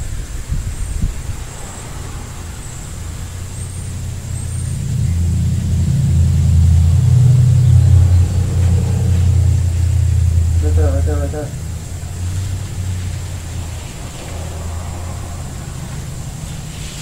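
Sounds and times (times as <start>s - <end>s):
low motor rumble: 0.0s - 17.0s.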